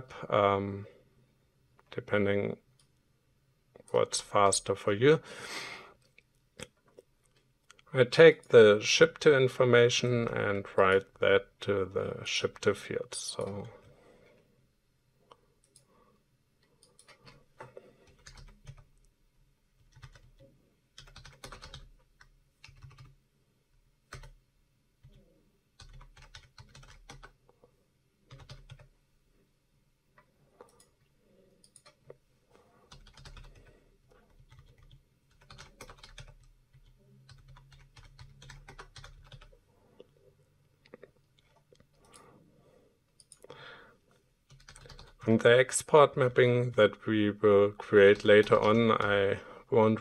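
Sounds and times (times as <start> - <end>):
faint keyboard typing: 2.7 - 3.0, 5.9 - 8.6, 12.4 - 14.4, 15.2 - 16.0, 16.6 - 19.2, 19.8 - 23.2, 24.0 - 24.4, 25.0 - 29.0, 30.1 - 40.2, 40.8 - 42.4, 43.1 - 45.2, 48.0 - 49.0
scattered clicks: 43.2 - 43.6.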